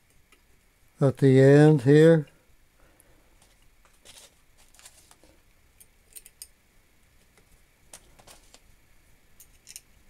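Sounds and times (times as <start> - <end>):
small metal parts clicking: 5.8 - 6.5, 9.4 - 9.9.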